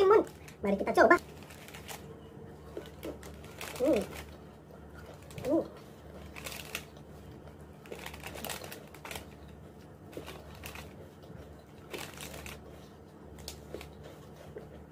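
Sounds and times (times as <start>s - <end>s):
plastic sachet crinkling: 0.0s - 4.4s, 5.0s - 11.0s, 11.8s - 14.0s.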